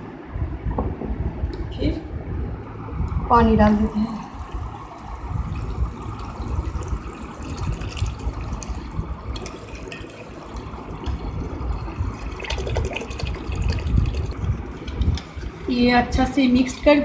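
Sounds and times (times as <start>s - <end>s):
water pouring into steel bowl: 5.5s - 15.6s.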